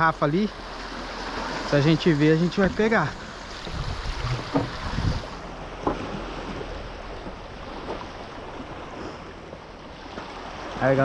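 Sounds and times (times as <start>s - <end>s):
surf washing on rocky shore: 0.0s - 11.0s
wind buffeting microphone: 2.5s - 10.0s
short knocks: 3.6s - 5.0s.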